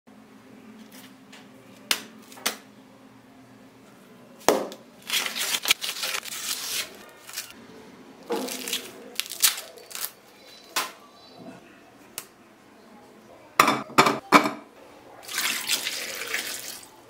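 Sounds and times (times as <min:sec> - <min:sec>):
corn husks rustling and tearing: 0:05.0 - 0:07.6, 0:08.4 - 0:10.2.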